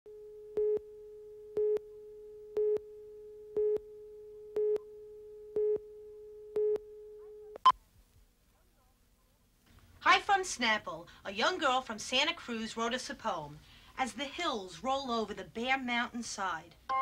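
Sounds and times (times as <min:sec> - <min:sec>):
faint steady tone: 0:00.1 - 0:07.9.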